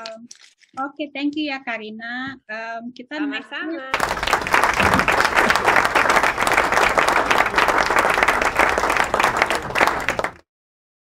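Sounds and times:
crowd applauding: 0:03.9 - 0:10.4.

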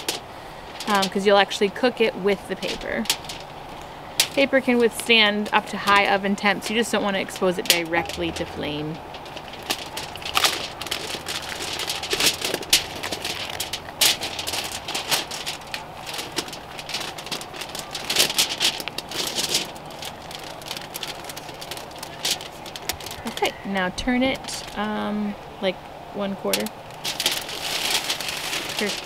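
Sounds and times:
paper and foil crinkling: 0:00.0 - 0:25.0, 0:26.4 - 0:29.0.

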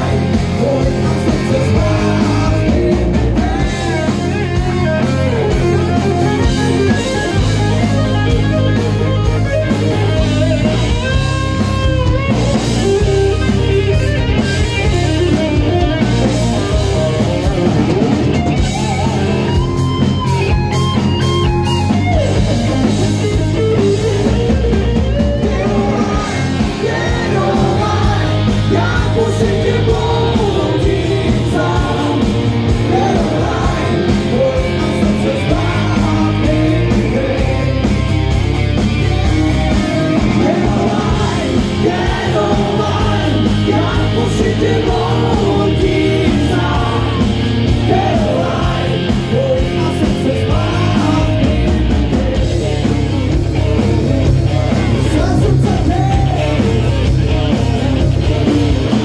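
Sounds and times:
man singing: 0:00.0 - 0:06.0, 0:25.3 - 0:38.0, 0:39.9 - 0:59.0
drum kit: 0:00.0 - 0:59.0
electric bass: 0:00.0 - 0:59.0
electric guitar: 0:00.0 - 0:59.0.

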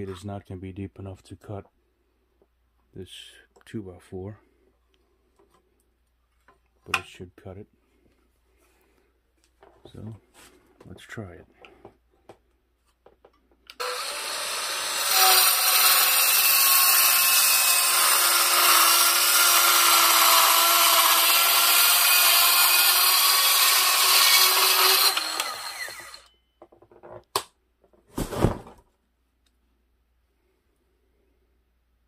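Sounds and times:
circular saw cutting wood: 0:13.8 - 0:26.3.

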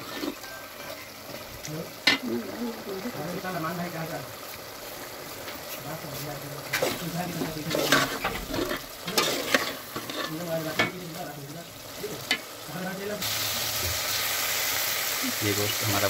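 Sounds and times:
metal ladle scraping a pot: 0:00.0 - 0:01.4, 0:06.7 - 0:11.0
chicken frying in oil: 0:00.0 - 0:16.0.

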